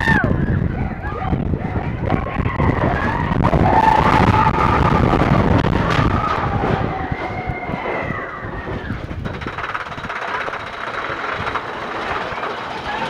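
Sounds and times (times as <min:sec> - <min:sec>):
roller coaster rattling on track: 0:00.0 - 0:13.0
lift chain clicking: 0:09.0 - 0:13.0.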